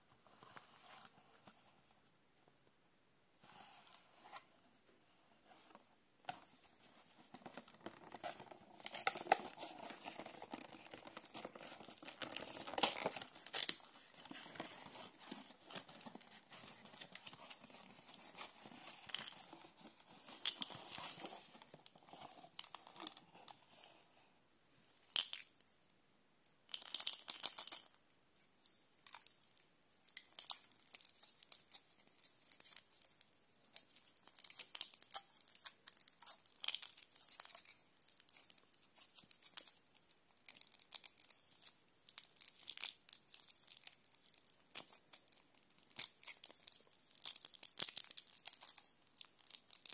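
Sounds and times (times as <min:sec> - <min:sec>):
foil wrapper crinkling: 0:08.8 - 0:14.6.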